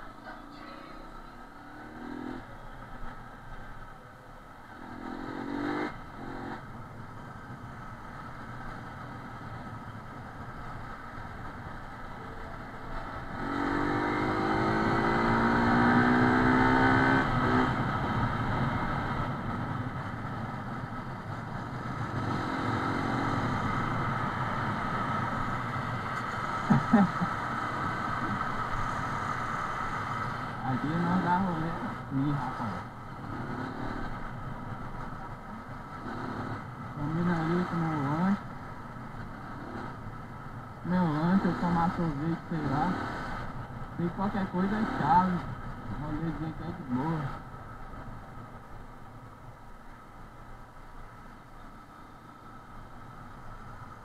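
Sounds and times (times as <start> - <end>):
road and wind noise: 0.0 - 54.0
motorcycle engine accelerating: 1.0 - 3.2, 4.7 - 38.5.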